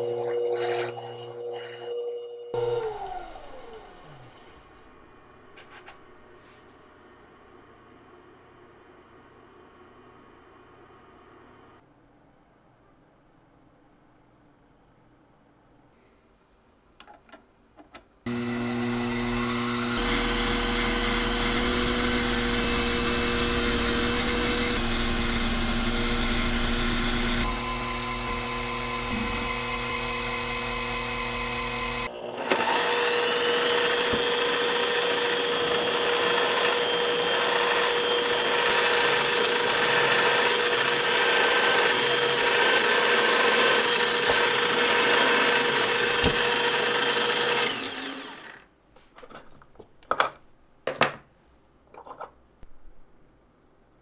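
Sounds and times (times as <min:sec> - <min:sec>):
milling machine cutting metal: 0:18.3 - 0:48.6
drill press drilling: 0:18.3 - 0:48.7.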